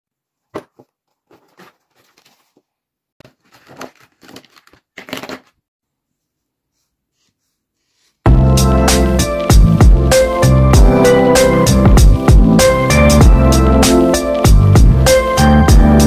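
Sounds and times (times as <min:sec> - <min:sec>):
fabric case rustling: 0:00.6 - 0:05.5.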